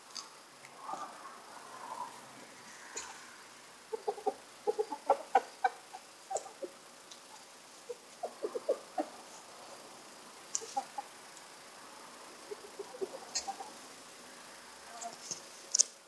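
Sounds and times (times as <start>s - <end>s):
hens clucking: 2.8s - 14.1s.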